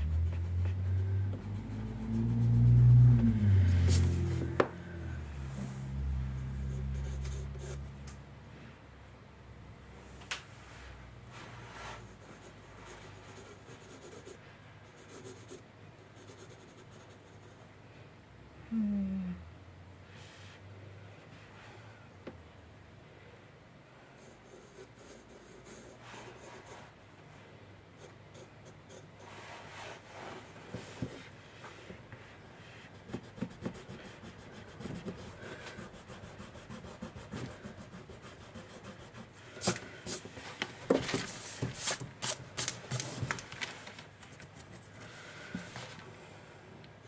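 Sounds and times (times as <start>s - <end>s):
pencil sketching on paper: 12.0s - 15.6s, 32.9s - 40.2s.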